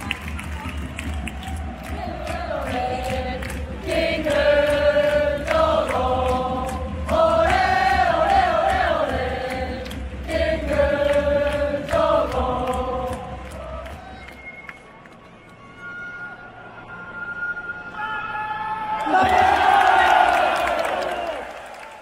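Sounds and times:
crowd singing a chant: 1.5s - 14.3s.

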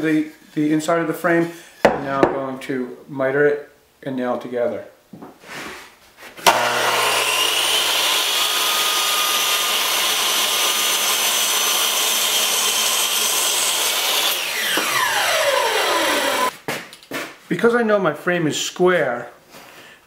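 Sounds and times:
miter saw cutting wood: 6.4s - 16.5s
saw blade spinning down: 6.4s - 16.5s.

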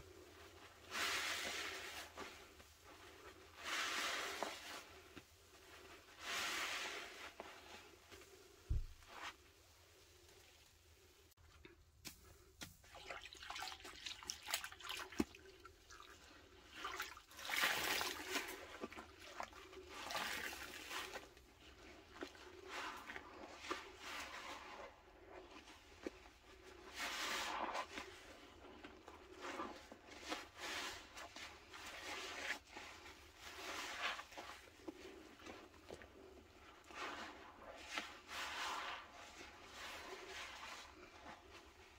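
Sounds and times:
sponges squelching: 0.1s - 10.6s, 12.0s - 41.9s.

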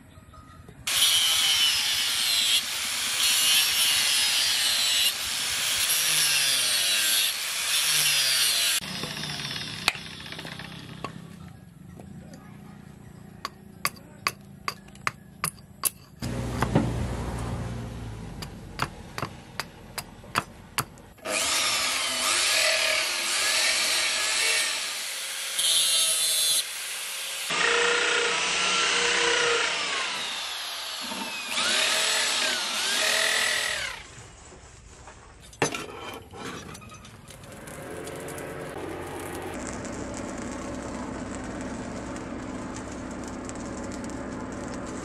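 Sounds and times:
power tool sanding wood: 0.9s - 11.0s, 21.3s - 34.0s.

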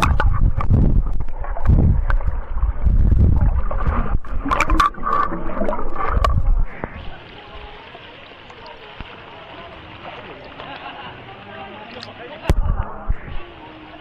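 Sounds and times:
underwater rumble of moving water: 0.0s - 11.0s
water gurgles: 0.0s - 14.0s.

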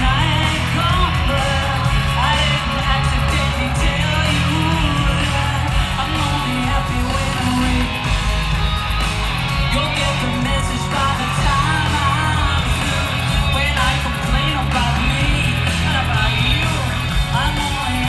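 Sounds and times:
woman singing: 0.0s - 8.0s
bass guitar: 0.0s - 18.0s
drums: 0.0s - 18.0s
electric guitar: 0.0s - 18.0s.

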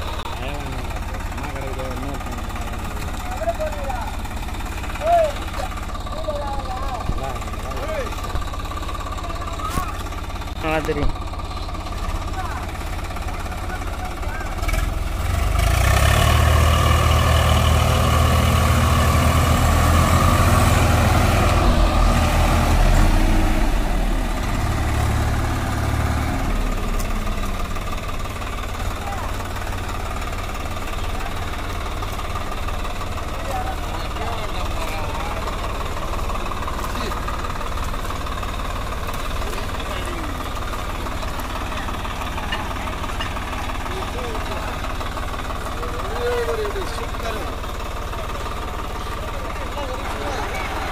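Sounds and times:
tractor diesel engine under load: 0.0s - 50.9s.

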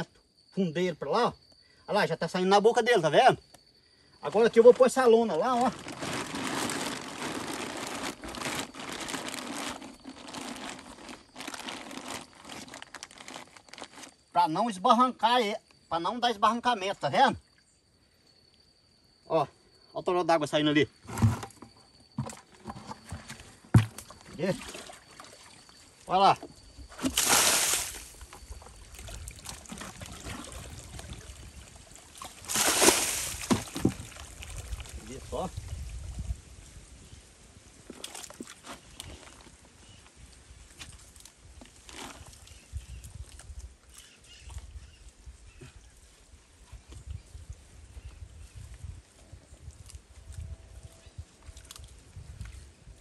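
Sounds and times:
bucket splashing muddy water: 4.6s - 14.1s, 21.1s - 25.7s, 26.3s - 35.0s, 37.9s - 39.5s
plastic tarp crinkling: 4.7s - 14.2s, 27.0s - 31.5s, 32.2s - 35.1s
water trickling from pipe: 23.8s - 35.0s.

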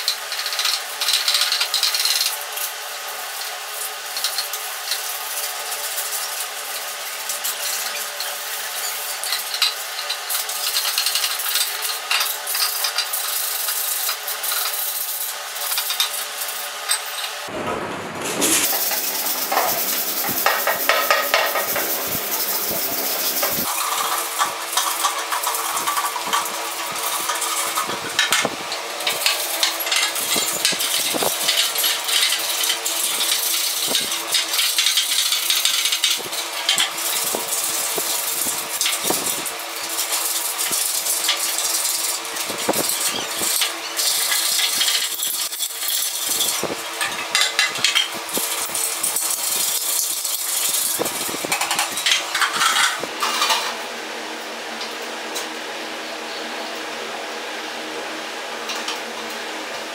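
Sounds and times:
sandpaper scraping metal: 18.2s - 24.2s.

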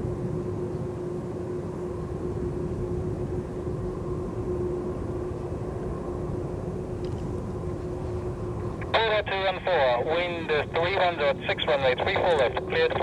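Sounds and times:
jet engines whining: 0.6s - 13.0s.

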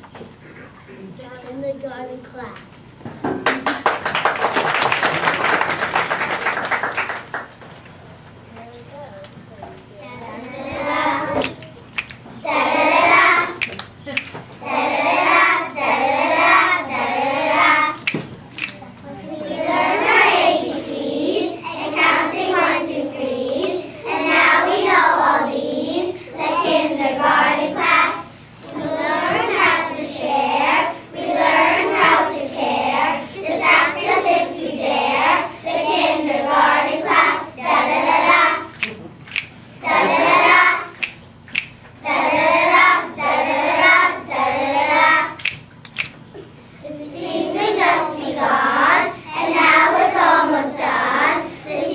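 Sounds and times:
children singing together: 10.3s - 11.8s, 12.4s - 13.7s, 14.6s - 18.2s, 19.1s - 38.9s, 39.8s - 41.2s, 42.0s - 45.6s, 46.8s - 51.9s.

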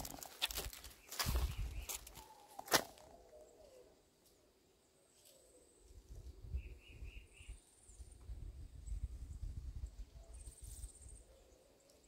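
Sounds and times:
faint birdsong: 0.0s - 12.0s.

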